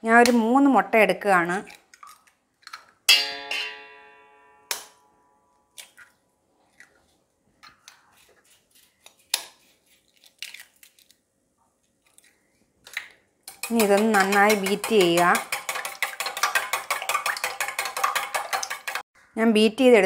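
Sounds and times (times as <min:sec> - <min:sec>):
bowl ringing: 0:03.1 - 0:05.5
egg knocking on metal bowl: 0:13.5 - 0:19.0.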